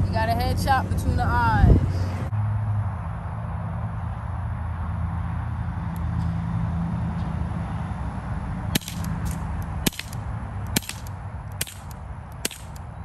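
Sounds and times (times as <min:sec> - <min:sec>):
low wind rumble: 0:00.0 - 0:13.0
air pistol shots: 0:08.8 - 0:12.9.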